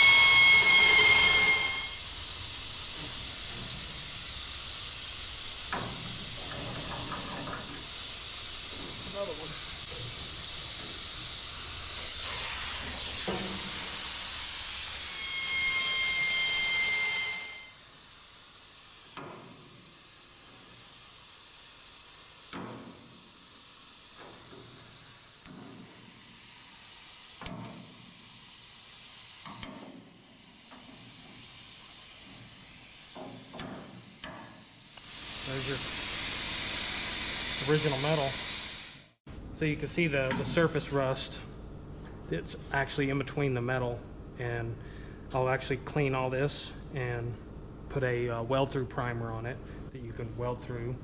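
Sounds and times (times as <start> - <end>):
steady whistle: 0.0 - 2.2, 14.8 - 17.8
compressed-air tool hissing: 0.0 - 15.2, 15.8 - 39.2.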